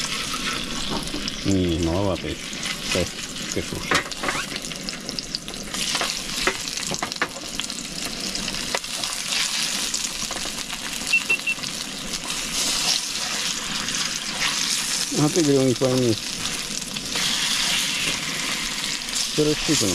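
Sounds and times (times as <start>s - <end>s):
fish sizzling in a hot pan: 0.0s - 19.9s.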